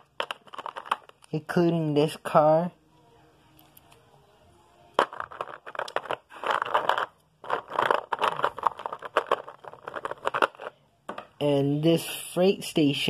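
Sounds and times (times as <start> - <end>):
plastic toy cars clattering: 0.0 - 1.3, 5.0 - 11.3.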